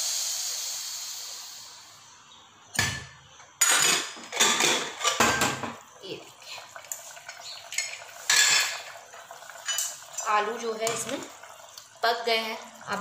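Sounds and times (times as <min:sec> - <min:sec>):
steam hissing from pressure cooker: 0:00.0 - 0:02.0
metal cooker clanking: 0:03.6 - 0:05.8, 0:07.7 - 0:11.2.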